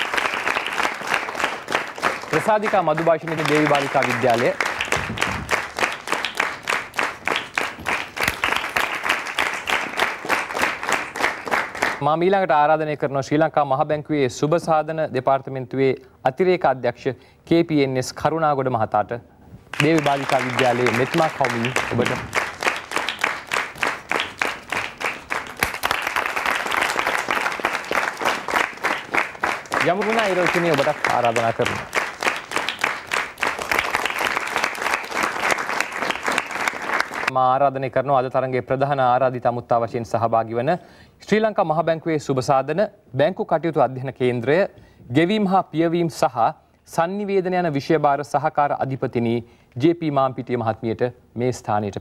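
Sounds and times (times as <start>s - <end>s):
audience applauding: 0.0s - 12.0s, 19.7s - 37.3s.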